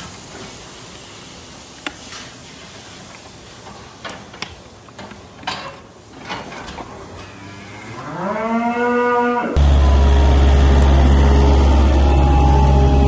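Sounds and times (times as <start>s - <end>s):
cow mooing: 7.3s - 9.6s.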